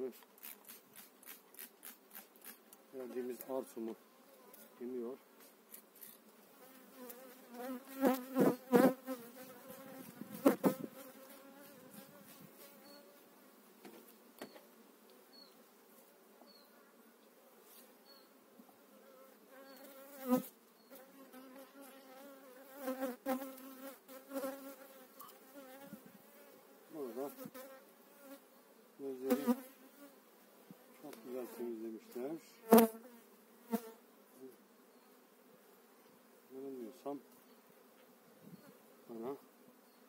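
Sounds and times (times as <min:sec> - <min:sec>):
bees buzzing: 0:05.4 - 0:13.2, 0:18.9 - 0:40.0.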